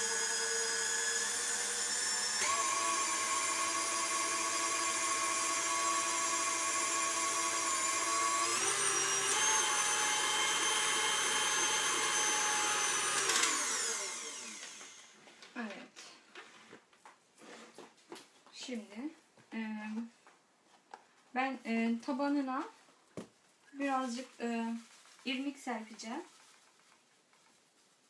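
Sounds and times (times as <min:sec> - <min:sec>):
stand mixer motor whining: 0:00.0 - 0:15.1.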